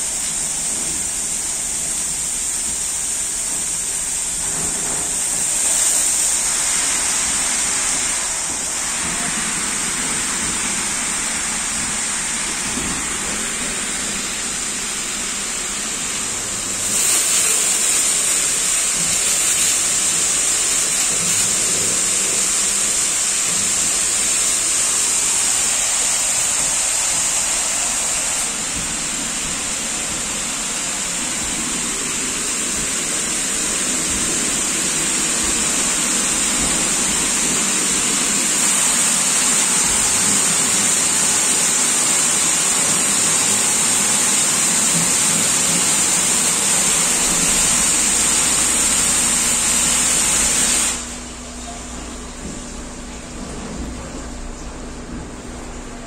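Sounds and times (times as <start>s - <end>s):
car wash spray jets hissing: 0.0s - 56.0s
low machine hum: 46.6s - 56.0s.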